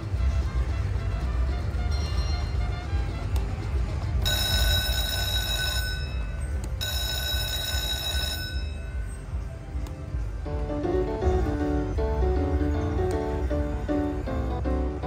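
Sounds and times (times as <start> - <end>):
slot machine ringing tones: 1.7 - 2.9, 4.1 - 9.7.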